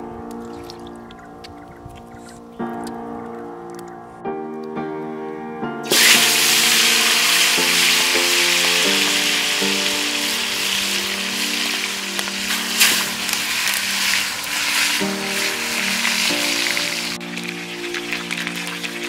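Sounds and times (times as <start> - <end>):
fish sizzling in hot oil: 5.9 - 19.0.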